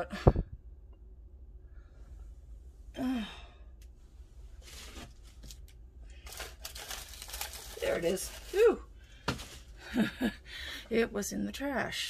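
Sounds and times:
woman sighing: 2.9s - 3.8s.

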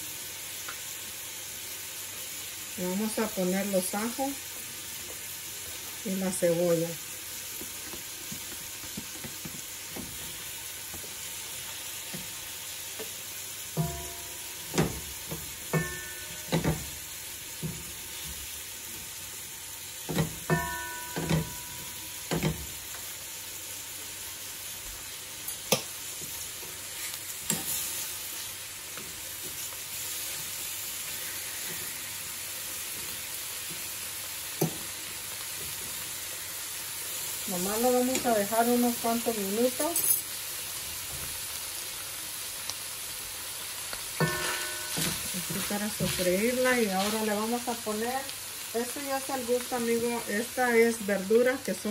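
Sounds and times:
meat sizzling in a pot: 0.0s - 51.9s
spatula scraping and knocking pot: 13.8s - 17.0s, 44.2s - 47.2s.

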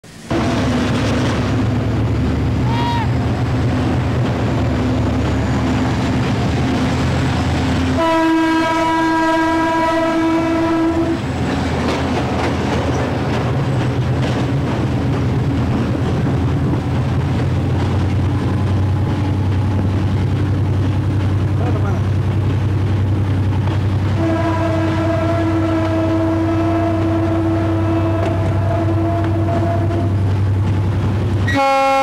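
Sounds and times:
diesel locomotive running: 0.0s - 32.0s
locomotive horn blast: 7.9s - 11.3s, 24.2s - 30.2s, 31.4s - 32.0s.

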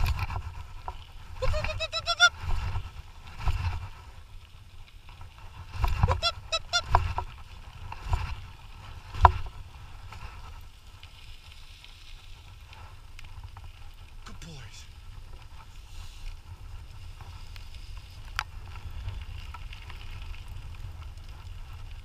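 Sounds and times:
wheels rumbling over rough trail: 0.0s - 22.0s
short high yelping calls: 1.4s - 2.3s, 6.1s - 6.9s.

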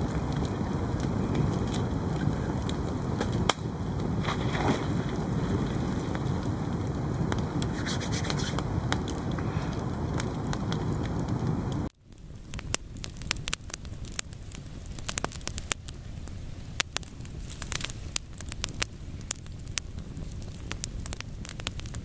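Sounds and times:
steady rushing noise: 0.0s - 11.9s
campfire crackling: 0.0s - 22.0s.

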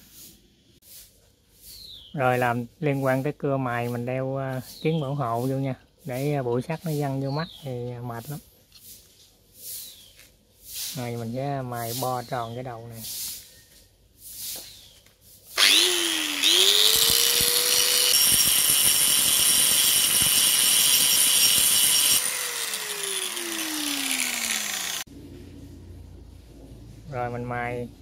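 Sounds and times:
angle grinder grinding metal: 15.6s - 25.1s.

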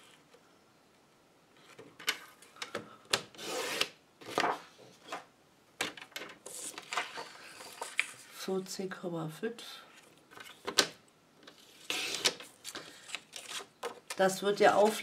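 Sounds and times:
paper rustling: 4.2s - 5.2s, 6.1s - 8.4s, 9.9s - 14.2s.

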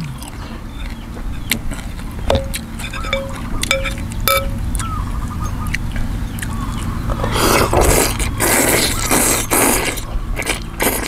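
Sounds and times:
man slurping noodles: 7.2s - 11.0s.

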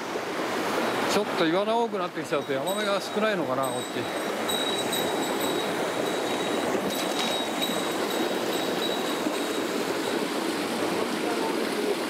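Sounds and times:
mountain stream flowing water: 0.0s - 12.0s.

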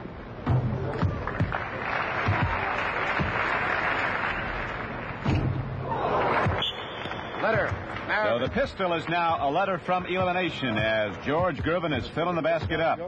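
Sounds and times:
crowd applauding: 0.9s - 5.2s, 5.9s - 9.2s.

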